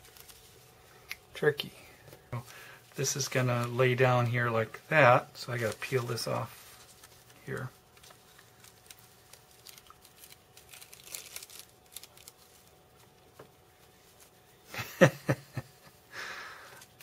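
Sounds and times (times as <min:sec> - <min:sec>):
plastic film crinkling: 0:00.0 - 0:00.8, 0:02.4 - 0:14.7.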